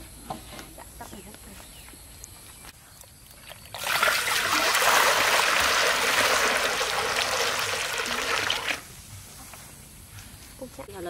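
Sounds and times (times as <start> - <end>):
water pouring into metal wok: 3.7 - 8.9.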